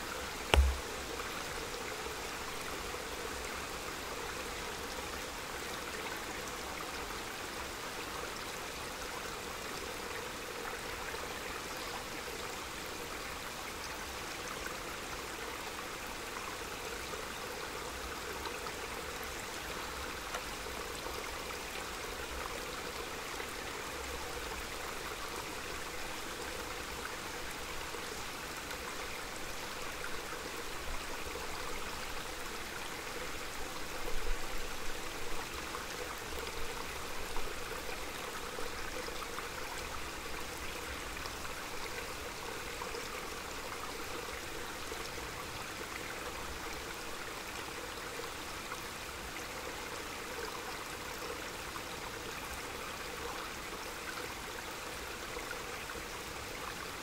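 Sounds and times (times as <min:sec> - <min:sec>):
stream babbling over stones: 0:00.0 - 0:08.1.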